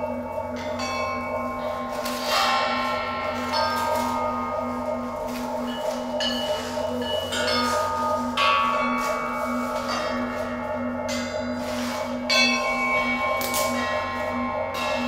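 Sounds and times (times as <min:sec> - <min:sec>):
low pulsing drone: 0:00.0 - 0:15.0
struck metal bell-like percussion: 0:00.0 - 0:15.0.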